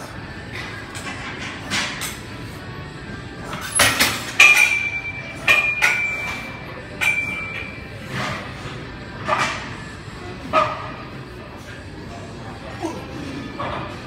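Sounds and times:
metal gym equipment clanking: 0:03.5 - 0:08.5.

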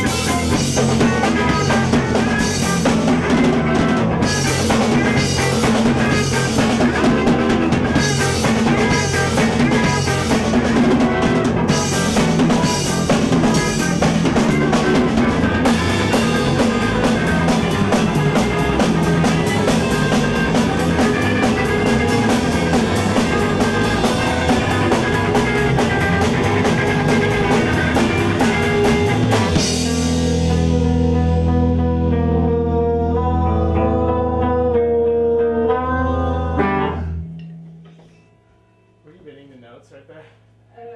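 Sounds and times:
drum kit kick and snare: 0:00.0 - 0:30.7
bass and guitar: 0:00.0 - 0:40.6.

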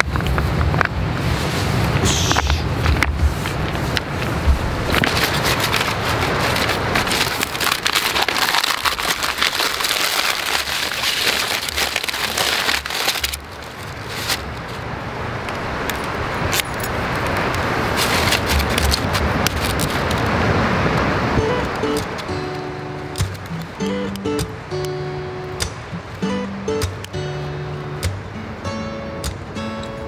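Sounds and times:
waves washing onto pebbles: 0:00.0 - 0:23.7.

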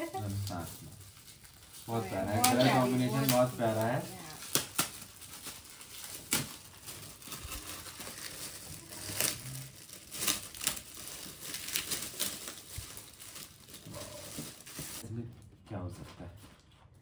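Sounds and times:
packaging rustling and crackling: 0:00.0 - 0:15.0.

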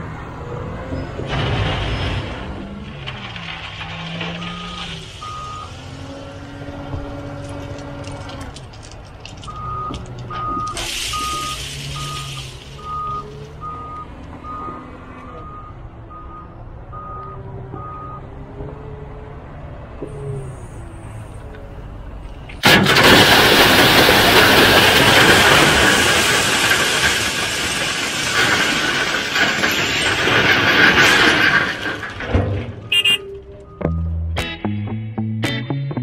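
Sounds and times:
reversing alarm beeps: 0:04.4 - 0:05.7, 0:09.5 - 0:18.2, 0:32.9 - 0:34.1.

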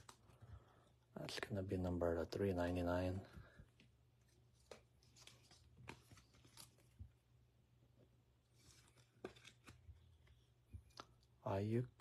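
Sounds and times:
trading cards clicking and rustling: 0:08.6 - 0:11.2.

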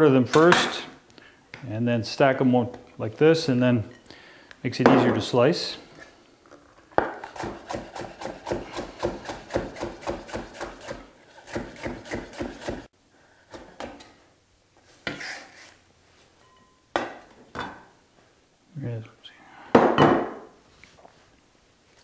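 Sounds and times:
knife chopping on wooden board: 0:07.0 - 0:12.9.

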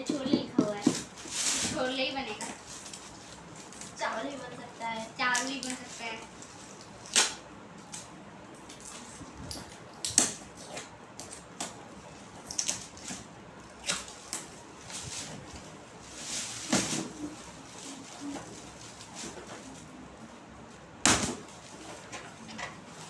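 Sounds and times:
paper rustling: 0:14.8 - 0:20.0.

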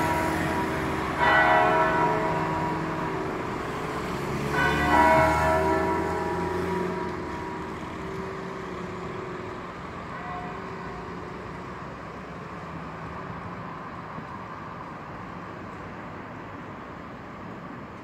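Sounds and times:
church bell ringing: 0:00.0 - 0:12.2.

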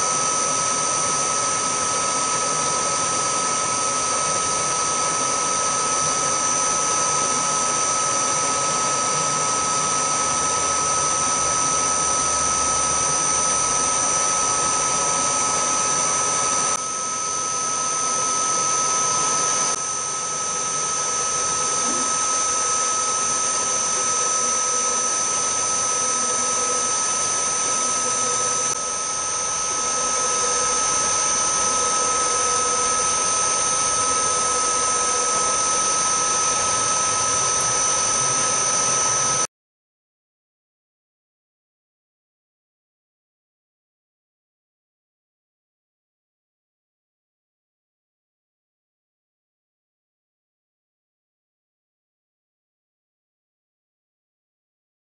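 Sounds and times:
drill boring into metal: 0:00.0 - 0:39.5
milling machine spindle whining: 0:00.0 - 0:39.5.

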